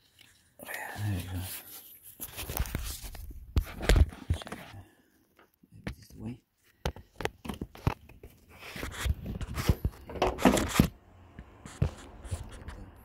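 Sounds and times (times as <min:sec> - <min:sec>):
rustling scrape: 0:01.2 - 0:04.6, 0:08.4 - 0:11.0, 0:11.6 - 0:13.0.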